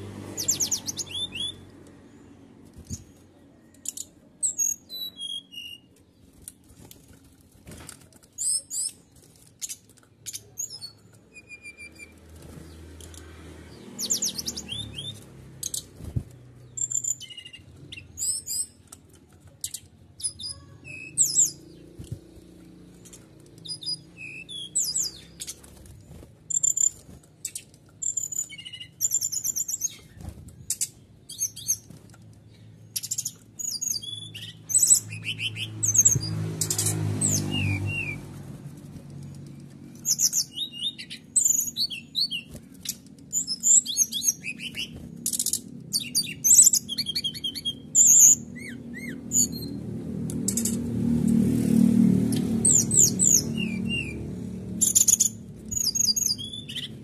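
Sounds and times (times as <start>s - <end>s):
bird chirping and trilling: 0.3s - 5.9s, 8.4s - 13.1s, 13.7s - 16.0s, 16.6s - 18.8s, 19.6s - 25.7s, 26.5s - 38.3s, 39.8s - 51.0s, 51.6s - 57.0s.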